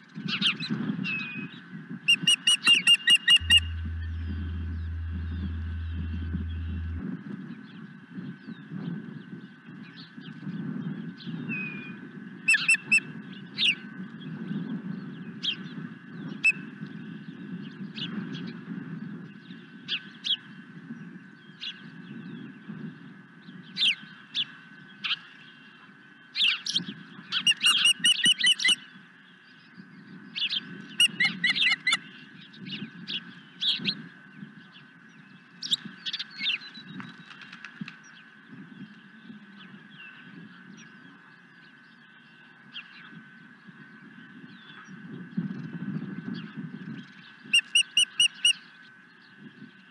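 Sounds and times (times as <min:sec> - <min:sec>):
low rumble: 0:03.4 - 0:07.1.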